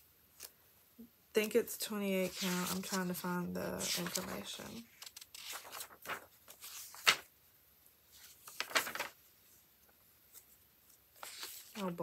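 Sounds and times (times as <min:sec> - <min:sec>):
paper rustling and crinkling: 0:02.2 - 0:07.3, 0:08.1 - 0:09.3, 0:10.3 - 0:12.0.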